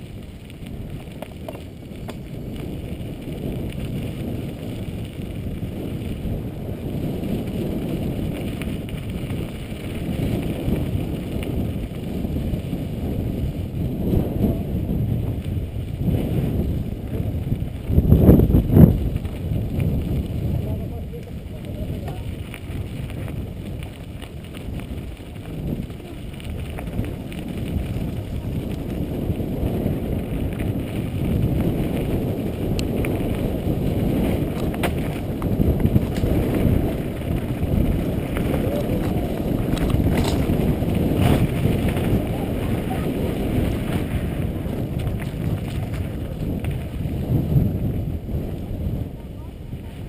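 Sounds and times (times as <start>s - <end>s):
tyres crunching over dirt: 0.0s - 14.0s, 14.9s - 48.2s
wind rumbling on microphone: 0.0s - 50.0s
bike knocks and rattles: 0.8s - 5.2s, 21.8s - 29.1s, 30.1s - 47.2s.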